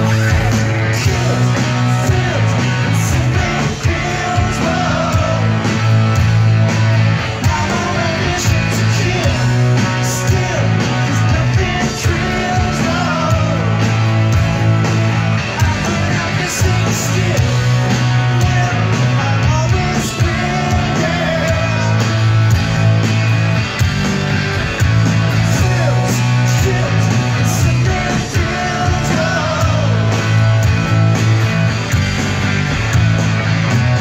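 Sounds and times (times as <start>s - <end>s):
lead vocal singing: 0.0s - 6.0s, 7.4s - 13.9s, 15.4s - 22.3s, 25.4s - 30.3s
live rock band playing: 0.0s - 34.0s.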